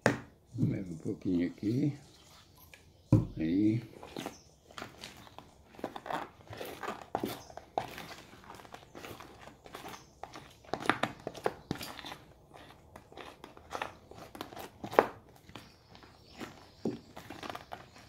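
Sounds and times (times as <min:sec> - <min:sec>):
slime squelching: 0:03.8 - 0:18.0.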